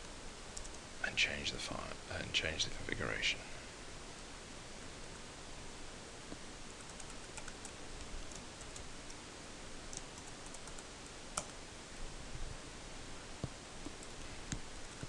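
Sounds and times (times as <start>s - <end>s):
steady hiss: 0.0s - 15.0s
keyboard typing: 0.6s - 0.8s, 6.8s - 8.9s, 9.9s - 11.5s.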